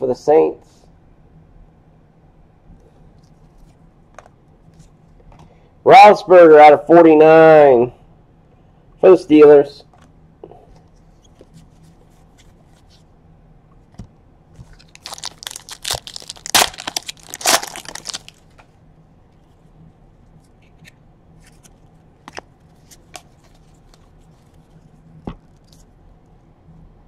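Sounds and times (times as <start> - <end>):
cards crinkling and rustling: 14.6 - 18.8, 20.5 - 25.9.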